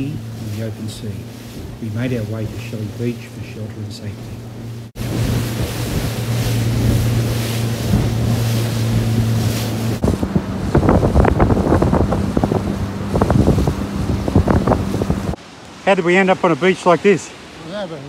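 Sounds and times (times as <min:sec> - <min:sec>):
wind buffeting microphone: 0:00.0 - 0:15.4
knocks and splashes: 0:00.0 - 0:15.8
outboard motor droning: 0:00.0 - 0:18.0
rushing water: 0:00.0 - 0:18.0.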